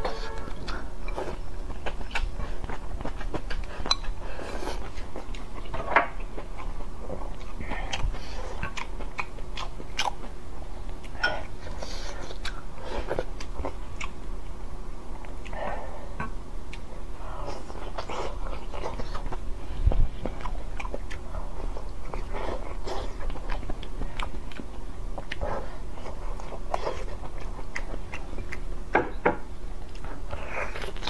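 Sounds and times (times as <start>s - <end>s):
wet chewing and biting: 0.6s - 11.2s, 17.5s - 28.7s.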